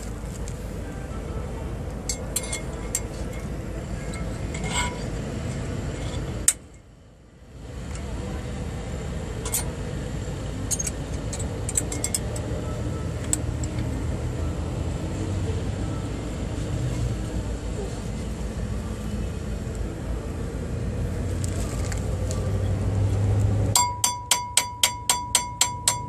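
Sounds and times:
low vehicle rumble: 0.0 - 23.8.

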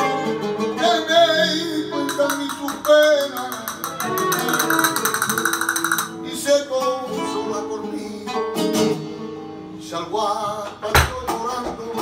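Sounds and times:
person singing: 0.0 - 8.5, 9.8 - 12.0
flamenco guitars playing: 0.0 - 12.0
bowed violin: 2.2 - 6.2.

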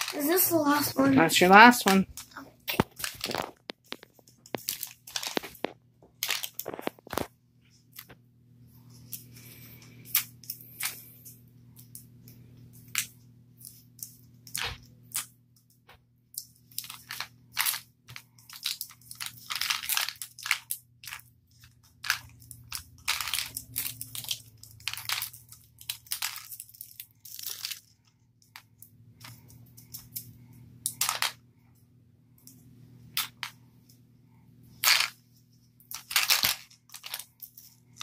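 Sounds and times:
plastic packaging crinkling: 0.0 - 0.8, 1.4 - 7.3, 16.7 - 28.2, 35.9 - 38.0.

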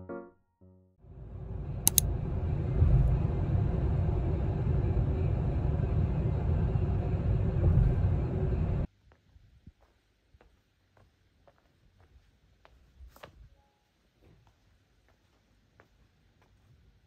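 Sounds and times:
car road noise inside cabin: 1.0 - 8.9.

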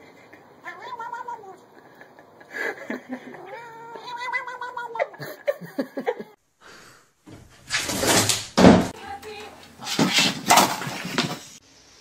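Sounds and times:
cat meowing: 0.6 - 1.7, 3.3 - 5.1.

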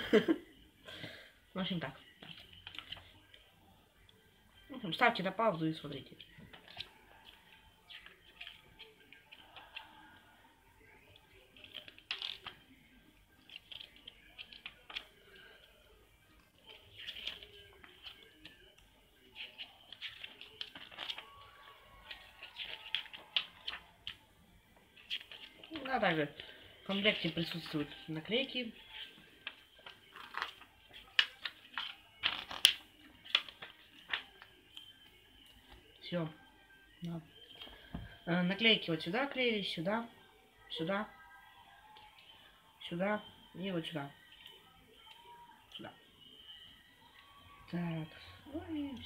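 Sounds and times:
paper pages turning: 2.2 - 3.4, 6.2 - 10.0, 11.2 - 12.8, 13.4 - 15.8, 16.4 - 24.2, 25.0 - 28.0, 28.8 - 34.9.

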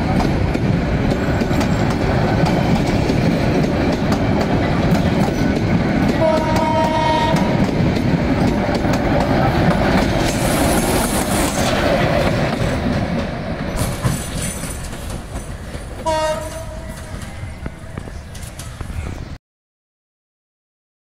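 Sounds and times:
train clickety-clack on track: 0.0 - 19.4
train horn blast: 6.1 - 7.6, 16.0 - 17.8.

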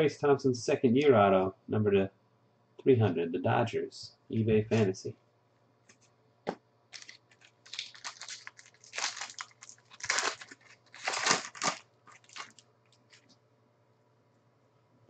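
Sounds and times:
foil wrapper crinkling and tearing: 6.9 - 13.3.

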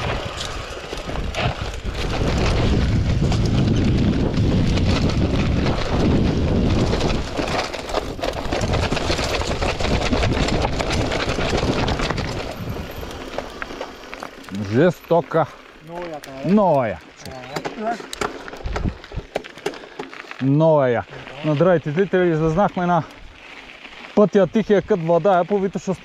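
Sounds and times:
wind rush on microphone: 0.0 - 13.4, 18.6 - 19.3
bike rattling over rocks: 0.0 - 26.0.

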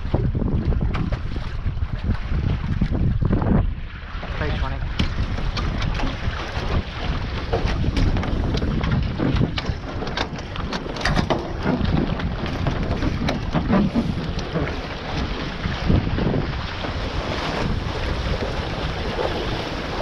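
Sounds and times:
water rushing along hulls: 0.0 - 20.0
wind buffeting microphone: 0.0 - 20.0
rigging knocks and rattles: 4.9 - 16.0.

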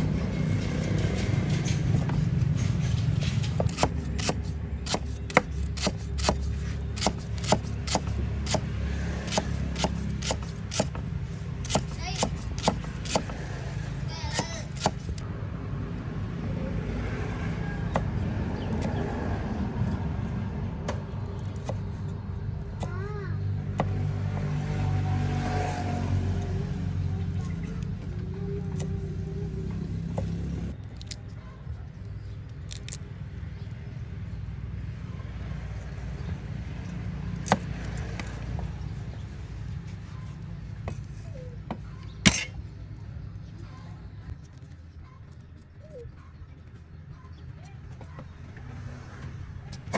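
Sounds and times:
low engine rumble: 0.0 - 49.9
cleaver chopping on wooden board: 3.6 - 11.0, 11.6 - 13.4, 14.3 - 15.2.

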